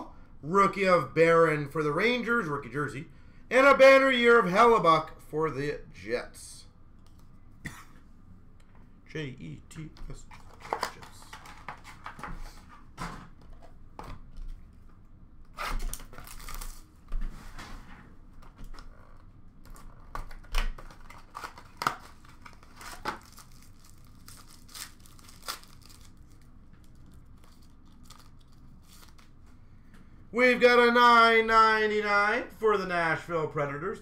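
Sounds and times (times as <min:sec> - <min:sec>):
foil packs tearing and crinkling: 0:15.6 - 0:16.9, 0:19.7 - 0:29.4.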